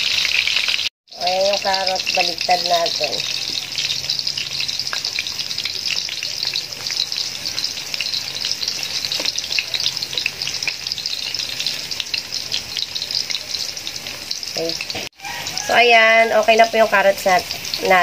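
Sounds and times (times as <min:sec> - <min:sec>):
food sizzling in hot oil: 0:00.0 - 0:18.0
tongs clicking on pan: 0:01.5 - 0:15.0.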